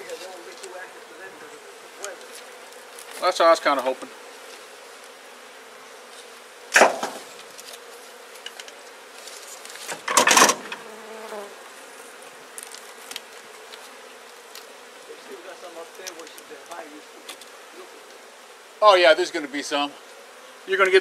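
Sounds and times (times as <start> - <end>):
bees buzzing: 0.0 - 21.0
loud knocks: 6.8 - 7.3.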